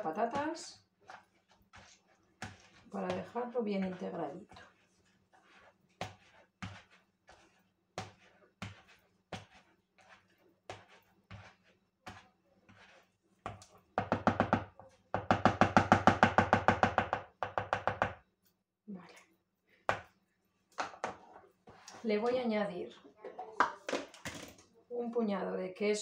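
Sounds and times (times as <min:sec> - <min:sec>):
potato masher mashing in bowl: 0:00.0 - 0:17.2.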